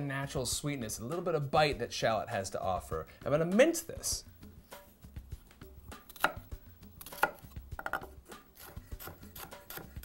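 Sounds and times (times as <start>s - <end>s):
knife chopping on wooden board: 6.0s - 10.0s.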